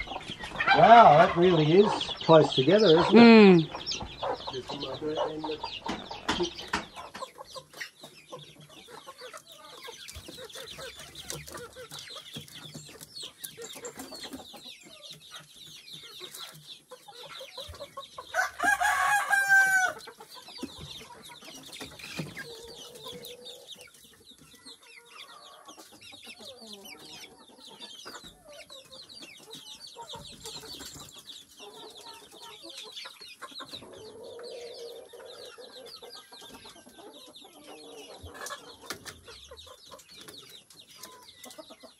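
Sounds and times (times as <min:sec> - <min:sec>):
chickens clucking: 0:00.0 - 0:41.9
rooster crowing: 0:18.3 - 0:20.0.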